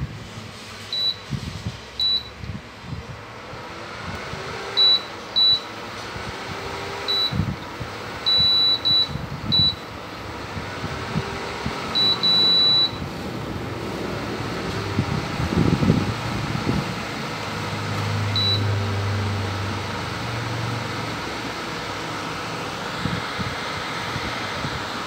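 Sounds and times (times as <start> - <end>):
short high electronic beeps: 8.3 - 9.8, 12.0 - 13.0.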